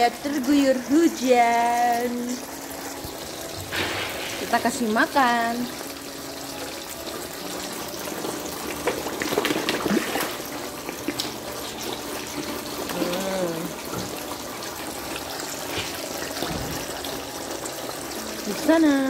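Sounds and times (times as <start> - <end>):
fish splashing and slurping: 2.4 - 4.6, 5.7 - 18.5.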